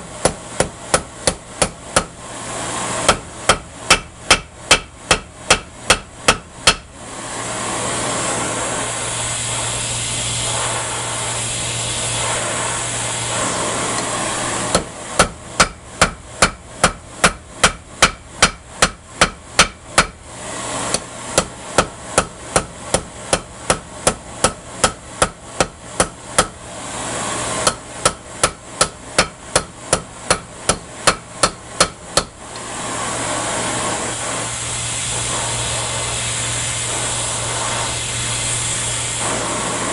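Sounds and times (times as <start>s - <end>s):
hammer striking metal on anvil: 0.2s - 2.2s, 3.1s - 6.9s, 14.7s - 20.2s, 20.9s - 26.6s, 27.6s - 32.3s.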